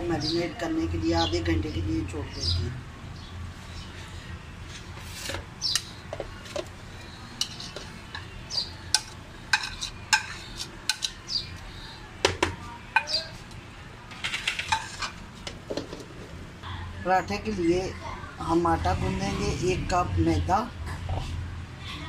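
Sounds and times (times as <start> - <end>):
spoon scraping and clinking plate: 7.4 - 11.4, 14.2 - 15.2.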